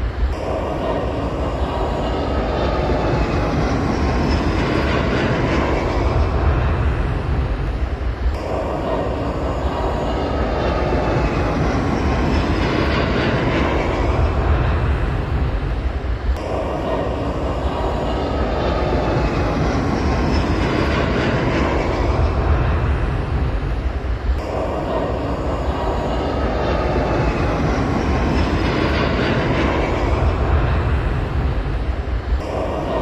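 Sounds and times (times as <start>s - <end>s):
jet taking off: 0.0s - 33.0s.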